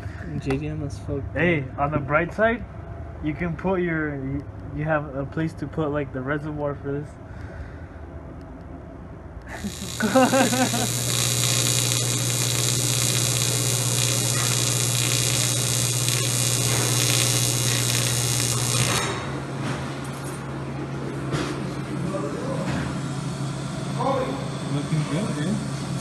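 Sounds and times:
welding arc buzzing: 9.4s - 20.7s, 21.8s - 26.0s.

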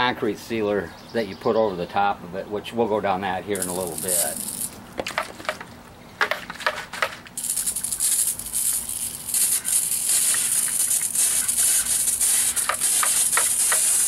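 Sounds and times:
sprayer clicks: 3.6s - 4.7s, 7.4s - 14.0s
sprayer hissing: 3.6s - 4.7s, 7.4s - 14.0s.

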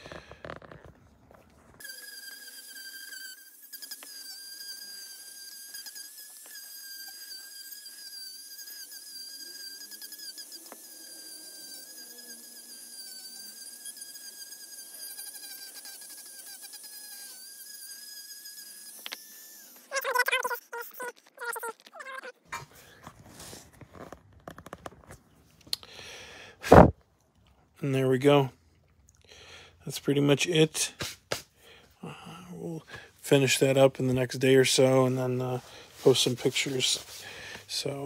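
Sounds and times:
rotary tool sanding wood: 1.7s - 22.3s, 33.2s - 38.0s.

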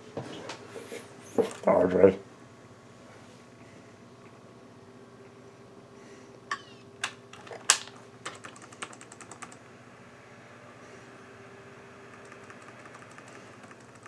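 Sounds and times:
faint steady hum: 0.0s - 14.0s
laptop keyboard clicks: 7.7s - 9.6s, 12.1s - 14.0s.

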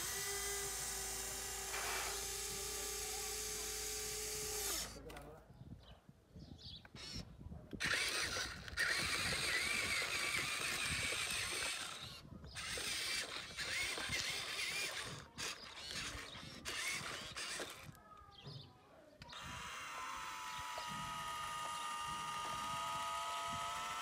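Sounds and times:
toy excavator motors whirring: 0.0s - 5.3s, 6.9s - 24.0s.

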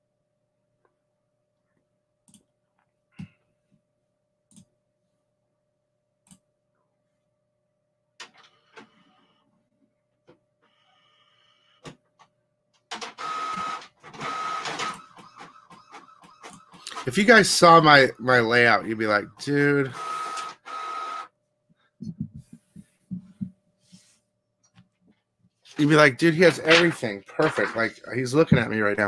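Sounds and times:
printer whirring: 12.9s - 18.7s, 19.3s - 21.3s, 25.8s - 28.0s
thin steady whine: 17.0s - 21.2s.

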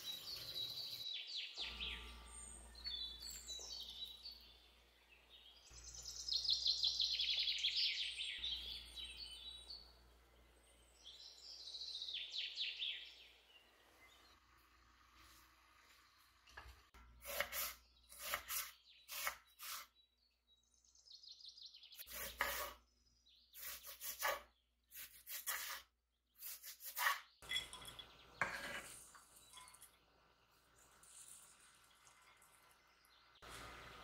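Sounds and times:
dishes and utensils clattering: 27.4s - 30.0s.

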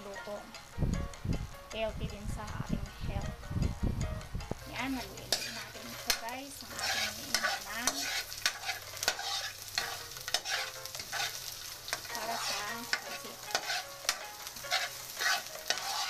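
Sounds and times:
onion and garlic sizzling in oil: 0.0s - 16.0s
metal spatula scraping a wok: 4.7s - 16.0s.

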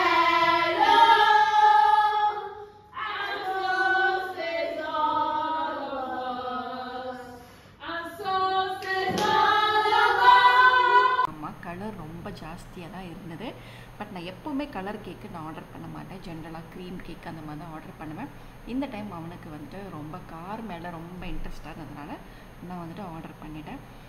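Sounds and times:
children's choir singing: 0.0s - 11.3s.

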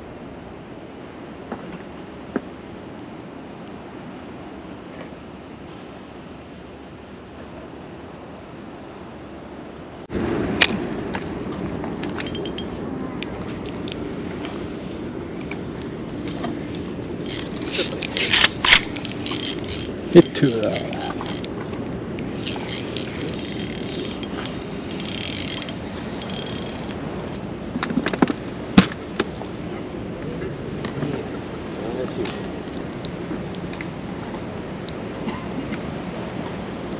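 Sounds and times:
sea noise: 0.0s - 36.9s
wind: 0.0s - 36.9s
fishing reel clicking: 12.2s - 12.7s, 17.2s - 21.5s, 22.4s - 27.5s.

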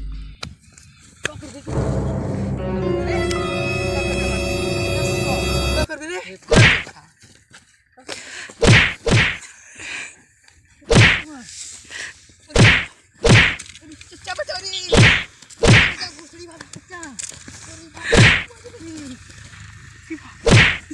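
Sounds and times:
sharp punch whacks: 6.5s - 6.9s, 8.6s - 9.4s, 10.9s - 11.2s, 12.6s - 13.6s, 14.9s - 16.0s, 18.1s - 18.5s, 20.4s - 20.9s.

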